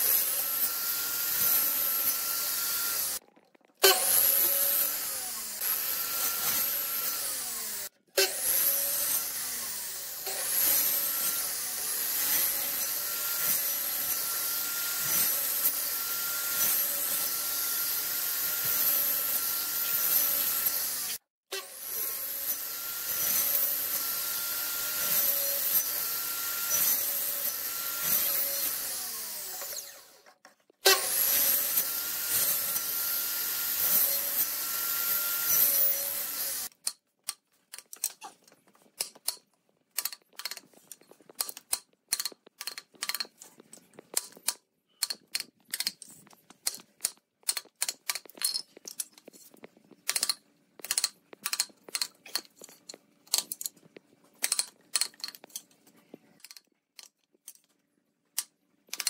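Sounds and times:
mitre saw cutting wood: 0.0 - 3.2, 3.8 - 36.7.

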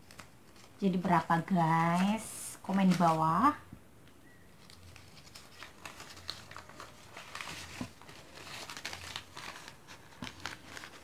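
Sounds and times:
banknotes rustling: 4.6 - 11.0.

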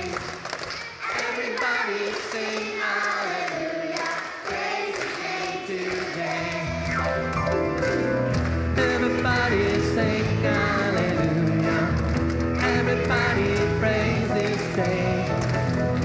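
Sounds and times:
choir and congregation singing hymn: 0.0 - 0.4, 1.0 - 7.0, 8.7 - 15.8
low bass accompaniment: 6.8 - 16.0.

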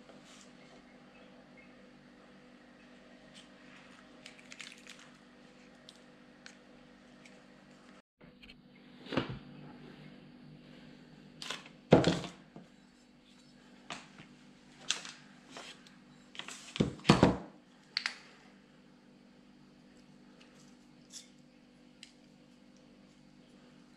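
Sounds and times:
faint steady hum: 0.0 - 23.9.

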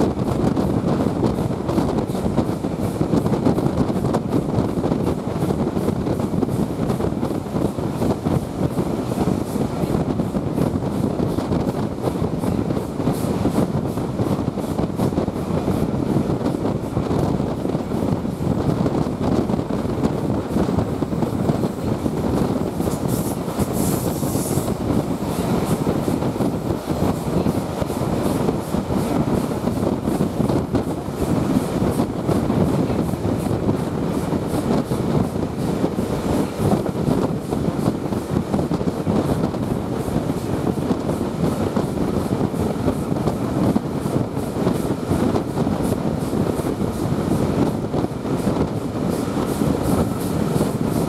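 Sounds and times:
rushing air: 0.0 - 51.0
train wheels rumbling on rails: 0.0 - 51.0.

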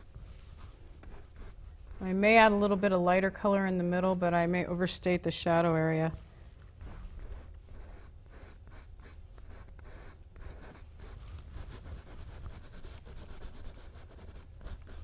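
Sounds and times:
paintbrush scratching on canvas: 0.0 - 3.0, 6.8 - 15.0.

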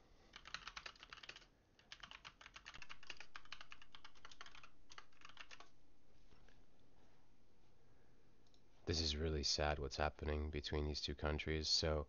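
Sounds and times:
typing on computer keyboard: 0.3 - 5.7.

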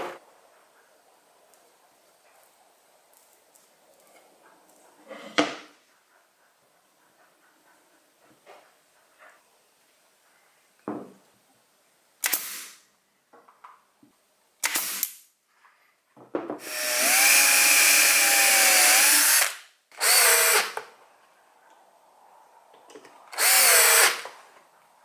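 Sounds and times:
cordless drill driving screws: 16.6 - 20.8, 23.3 - 24.3.

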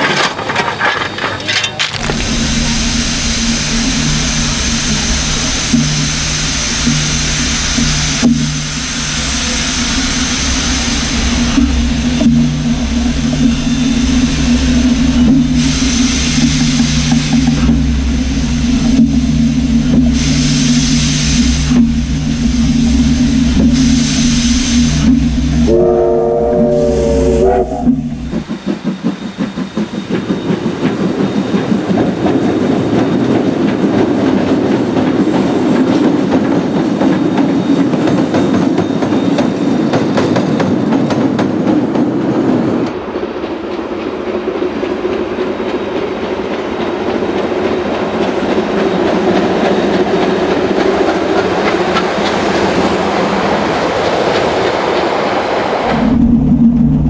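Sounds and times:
steam locomotive chuffing: 0.0 - 57.0
steam rush of running train: 0.0 - 57.0
steam whistle: 25.6 - 28.2.

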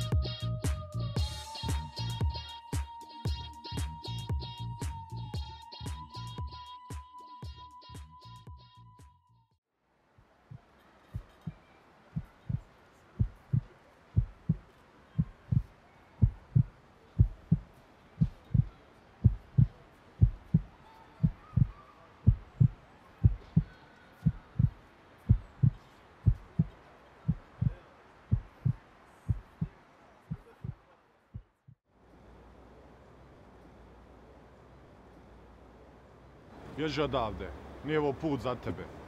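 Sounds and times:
heartbeat thumps: 10.5 - 11.6, 12.2 - 30.8.

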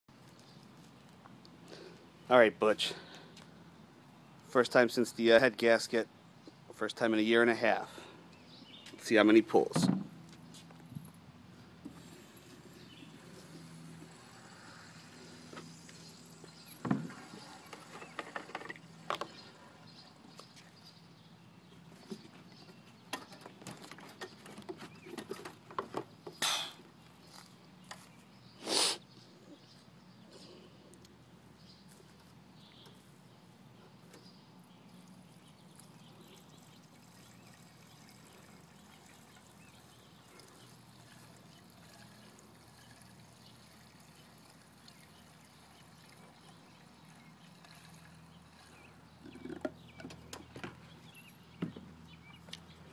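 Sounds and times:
fuel trickling into tank: 11.5 - 23.4, 34.6 - 51.6.

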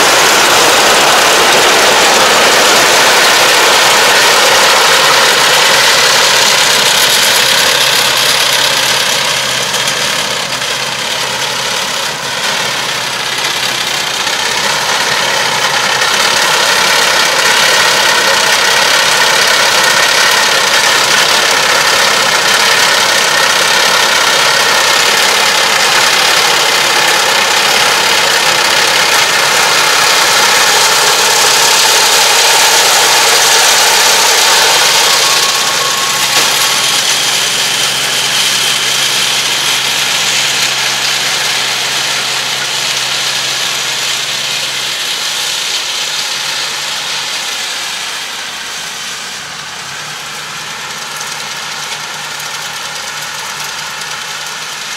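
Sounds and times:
baler machinery hiss: 0.0 - 54.8
tractor engine under load: 0.0 - 54.9.

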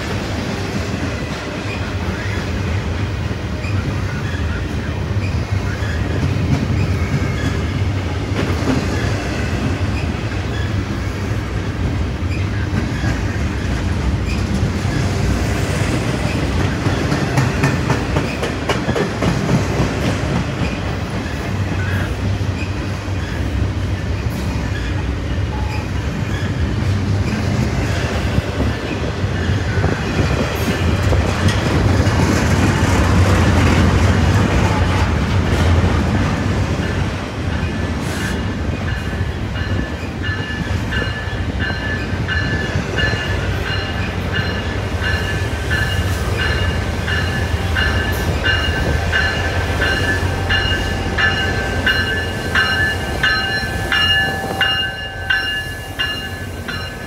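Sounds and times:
steel train wheels on rail: 0.0 - 57.0.

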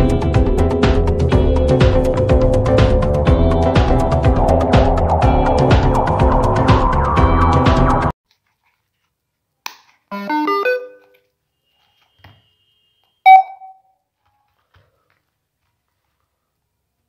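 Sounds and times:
music: 0.0 - 8.2
loud electronic beep: 13.2 - 13.9.

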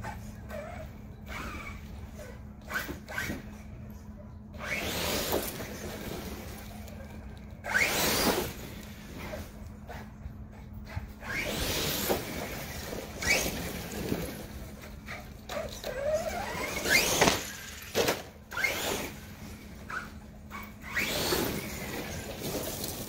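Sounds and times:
electric motor whining: 4.6 - 9.6, 11.2 - 23.0.

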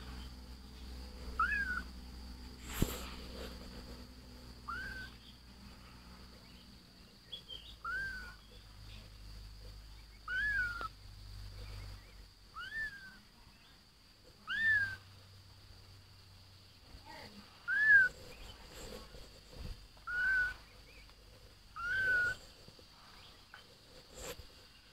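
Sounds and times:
kittens mewing: 1.2 - 2.0, 4.6 - 5.2, 7.8 - 8.4, 10.3 - 10.9, 14.4 - 15.0, 17.1 - 19.1, 20.0 - 20.6, 21.8 - 22.5.

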